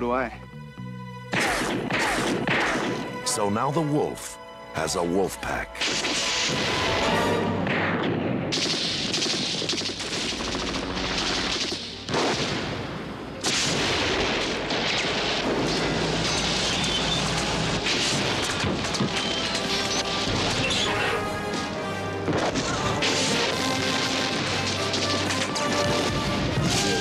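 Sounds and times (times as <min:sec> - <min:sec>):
explosion: 0:05.8 - 0:21.1, 0:22.3 - 0:27.0
rapid automatic gunfire: 0:07.7 - 0:12.5.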